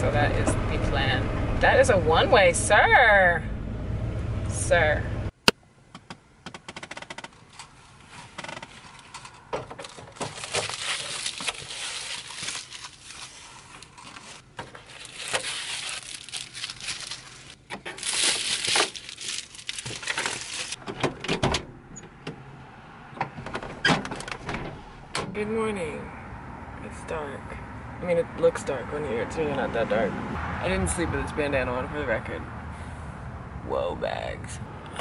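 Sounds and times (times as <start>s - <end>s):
soft crinkling rustling: 7.4s - 20.8s.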